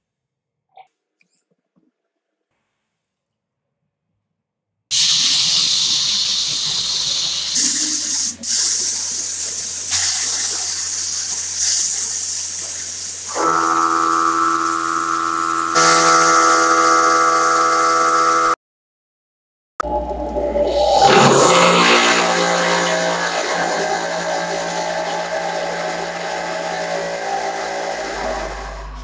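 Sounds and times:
air spray gun hissing: 4.9s - 16.6s
steady whistle: 13.3s - 18.6s, 20.4s - 29.0s.

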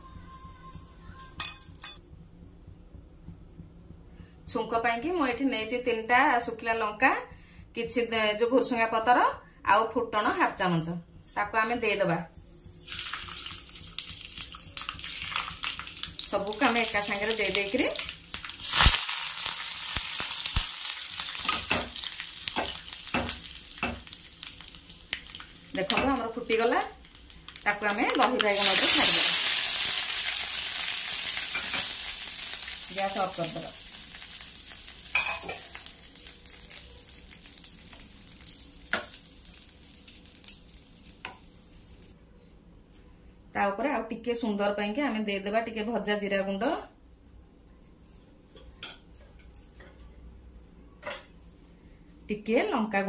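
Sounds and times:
spices crackling and popping: 12.4s - 42.2s
hot oil sizzling: 12.6s - 42.2s.

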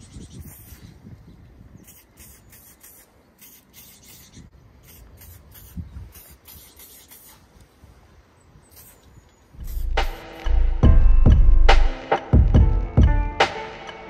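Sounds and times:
spray paint can hissing: 0.4s - 0.9s, 1.8s - 7.5s, 8.7s - 9.0s, 9.6s - 10.5s.

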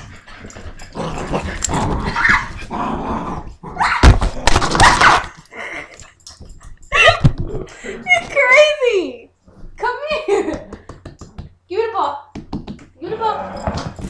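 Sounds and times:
dog growling: 0.0s - 3.8s, 13.1s - 14.0s
dog yips and barks: 2.1s - 2.6s, 3.8s - 4.1s, 4.8s - 5.3s.

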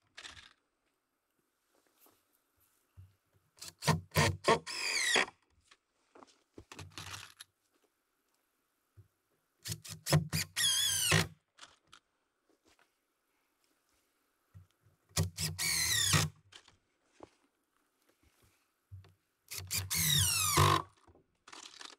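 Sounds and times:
cordless drill driving screws: 3.6s - 5.3s, 9.6s - 11.4s, 15.2s - 16.4s, 19.5s - 21.0s.

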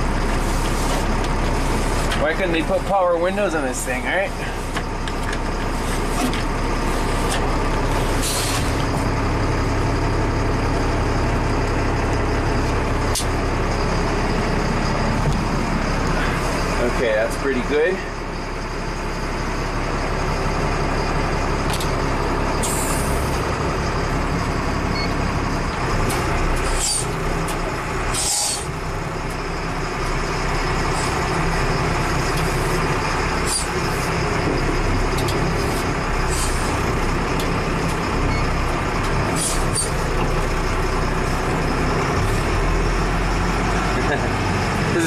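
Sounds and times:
truck diesel engine running: 0.0s - 45.0s.

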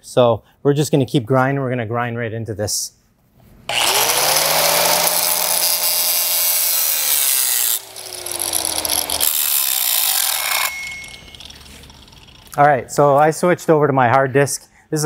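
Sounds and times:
angle grinder grinding steel: 3.7s - 12.5s.

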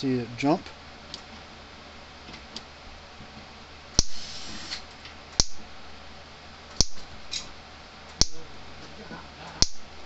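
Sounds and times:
electric fence spark snaps: 3.9s - 5.6s, 6.7s - 7.5s, 8.1s - 8.4s.

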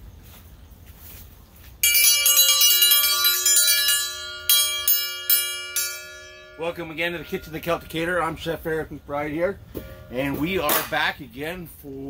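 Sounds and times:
metal bell ringing: 1.8s - 9.0s, 9.8s - 10.7s.

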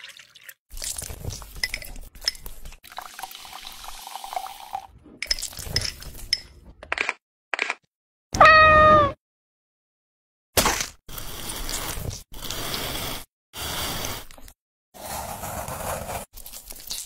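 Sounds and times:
metal stirrer clinking on bottle: 1.5s - 2.6s, 5.2s - 6.5s.

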